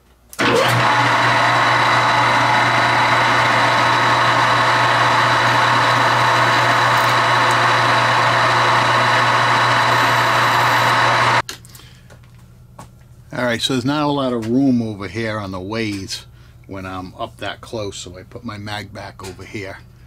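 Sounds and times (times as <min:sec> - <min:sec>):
metal lathe humming: 0:00.4 - 0:11.4.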